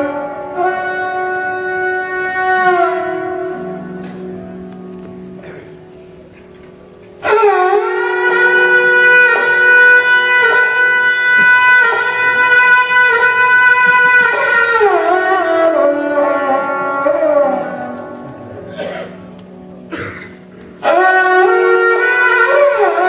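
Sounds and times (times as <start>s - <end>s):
sarangi bowed high note: 0.0s - 23.0s.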